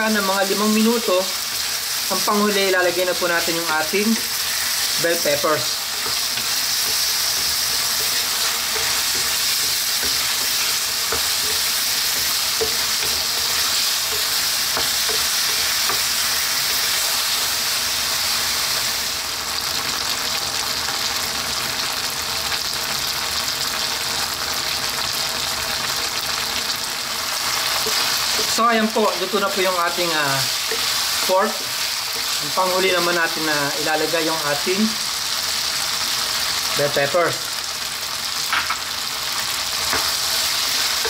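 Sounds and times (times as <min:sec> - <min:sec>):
meat sizzling in a frying pan: 0:00.0 - 0:41.0
wooden spatula scraping a pan: 0:03.9 - 0:17.3.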